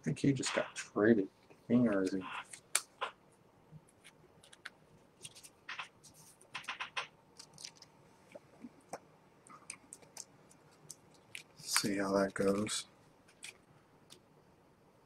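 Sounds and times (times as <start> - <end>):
cards clicking and rustling: 3.9 - 7.9, 9.6 - 13.6.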